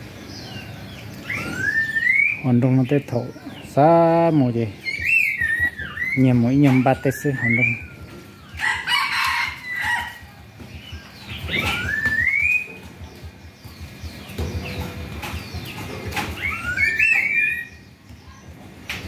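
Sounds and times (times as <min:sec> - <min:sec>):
rooster crowing: 0:08.6 - 0:10.3
rising whistled notes: 0:11.5 - 0:12.8.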